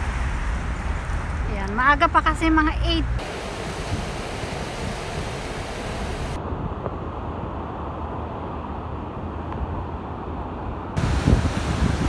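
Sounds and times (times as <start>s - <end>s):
wind on microphone: 3.1s - 7.0s, 10.9s - 12.0s.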